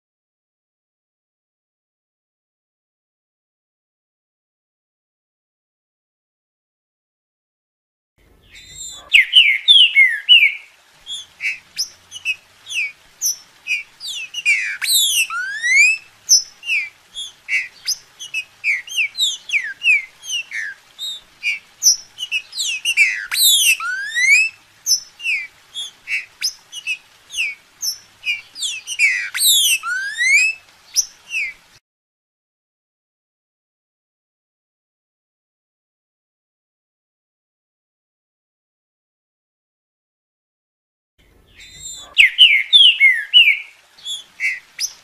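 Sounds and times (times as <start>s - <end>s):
bird singing whistled notes: 8.4s - 31.6s, 41.5s - 45.0s.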